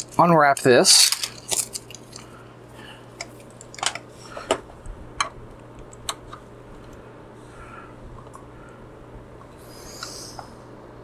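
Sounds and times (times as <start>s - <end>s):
steady low hum: 0.0s - 11.0s
cables clicking into ports: 5.2s - 7.0s.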